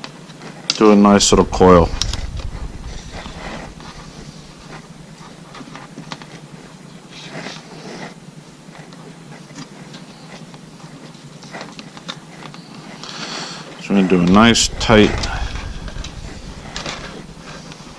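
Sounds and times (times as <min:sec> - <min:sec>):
faint low hum: 0:01.0 - 0:05.8, 0:13.9 - 0:17.9
fabric rubbing on microphone: 0:14.1 - 0:17.9.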